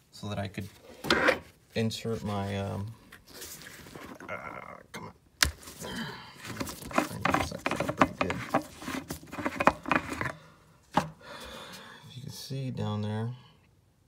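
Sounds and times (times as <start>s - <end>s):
irregular clicks scrapes and rustles: 6.4s - 10.4s.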